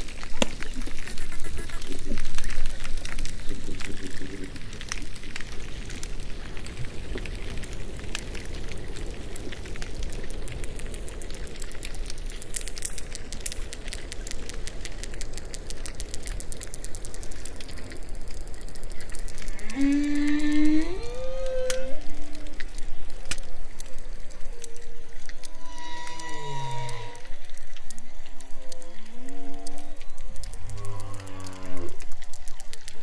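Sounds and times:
crackling hissing underwater background: 0.0s - 33.0s
dolphin echolocation clicks: 0.0s - 33.0s.

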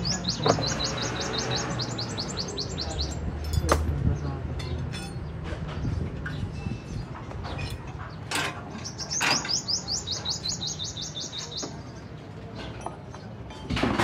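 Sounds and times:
bird chirping rapidly: 0.0s - 3.3s, 8.1s - 12.2s.

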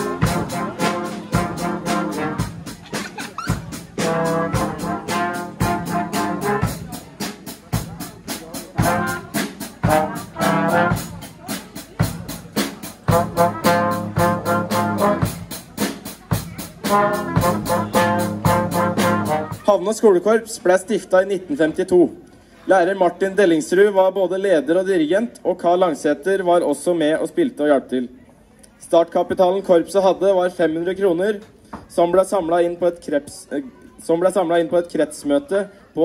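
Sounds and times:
brass band playing: 0.0s - 19.8s.

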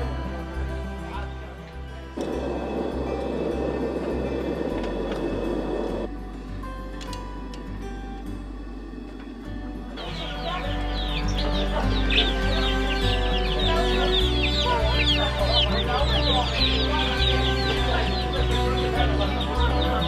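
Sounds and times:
background music with bass: 0.0s - 20.0s
small birds chirping: 8.9s - 20.0s.

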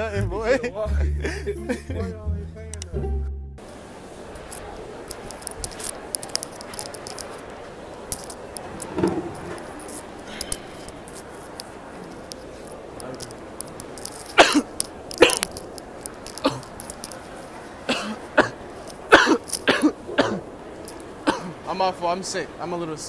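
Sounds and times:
steady background hum: 0.0s - 23.0s
light clicks and clatter: 4.4s - 17.7s, 20.8s - 21.5s
man coughing: 14.4s - 15.4s, 17.9s - 20.5s.

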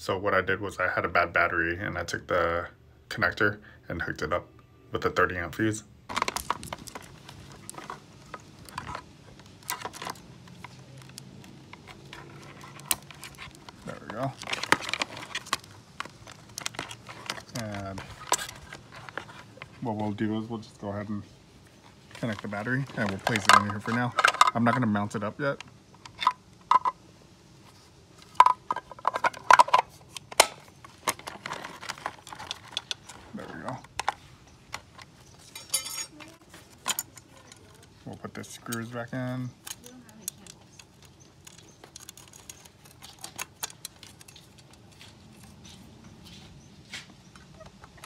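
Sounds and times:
plastic clicks and clacks: 28.2s - 35.1s, 39.6s - 45.0s
plastic connectors clicking: 39.6s - 44.8s.

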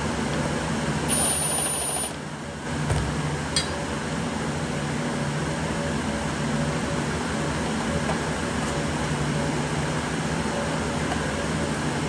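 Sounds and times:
fan hum: 0.0s - 12.0s
cordless driver whine: 1.1s - 2.2s.

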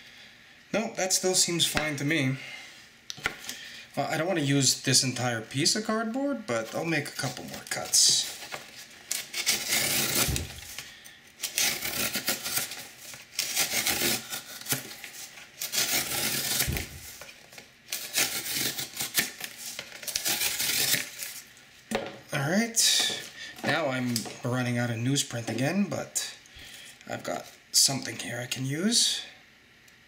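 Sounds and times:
knife slicing cardboard: 9.2s - 10.7s, 15.6s - 17.2s.

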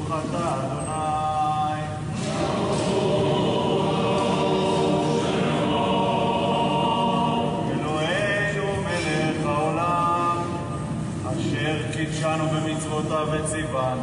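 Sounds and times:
men chanting together: 2.1s - 9.4s.

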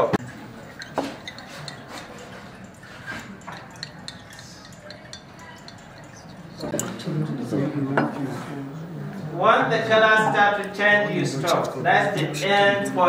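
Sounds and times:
glassware ticks and clinks: 0.2s - 7.1s.

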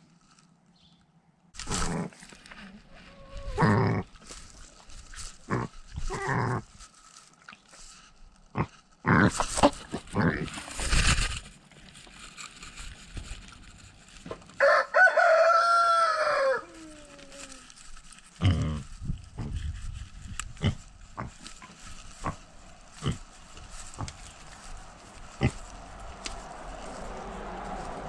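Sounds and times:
rooster crowing: 14.6s - 17.5s.

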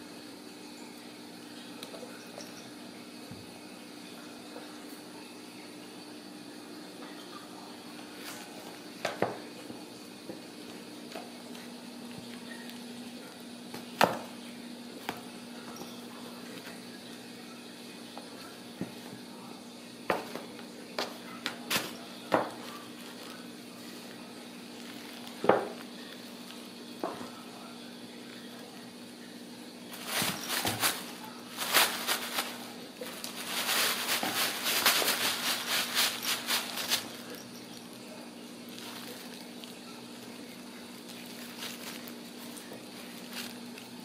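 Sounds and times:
paper rustling and crinkling: 21.5s - 26.6s, 29.9s - 44.0s.

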